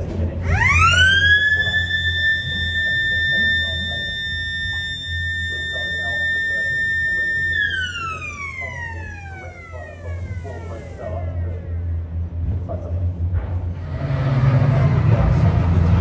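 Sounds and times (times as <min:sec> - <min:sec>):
siren wailing: 0:00.4 - 0:11.8.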